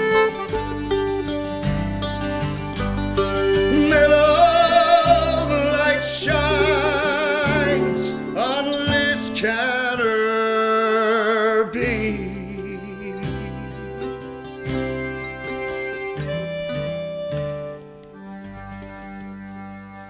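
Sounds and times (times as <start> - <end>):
mandolin: 0.0 - 11.2, 11.8 - 20.0
accordion: 0.0 - 20.0
acoustic guitar: 0.0 - 20.0
person singing with vibrato: 3.4 - 14.6.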